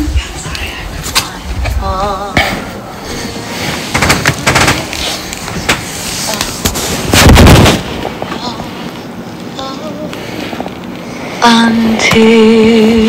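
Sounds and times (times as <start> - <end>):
sharp bangs and knocks: 3.9 - 4.9, 6.7 - 8.0.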